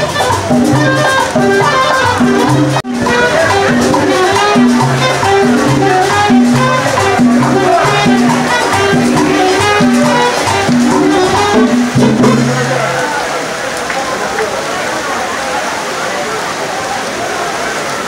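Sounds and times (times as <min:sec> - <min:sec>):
latin dance music: 0:00.0 - 0:13.2.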